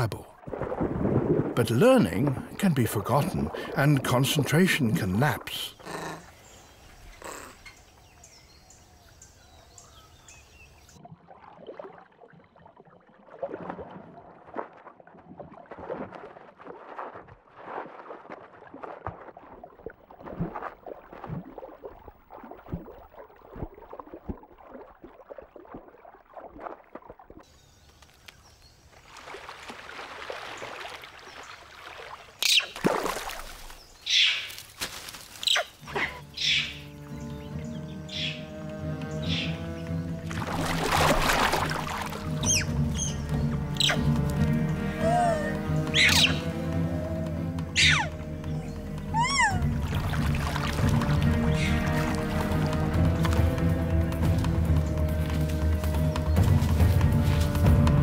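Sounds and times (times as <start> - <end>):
rushing water: 0.0 - 58.0
water splashing and sloshing: 0.0 - 58.0
shrill animal calls: 45.0 - 47.1, 47.8 - 48.2, 49.1 - 49.6.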